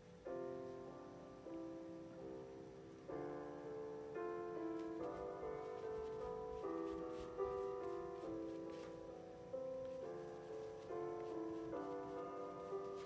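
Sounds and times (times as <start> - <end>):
soft piano chords: 0.0 - 13.0.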